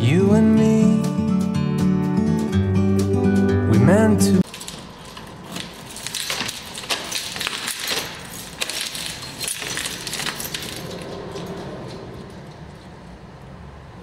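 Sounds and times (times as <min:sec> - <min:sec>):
objects clicking and clinking: 0:04.4 - 0:13.2.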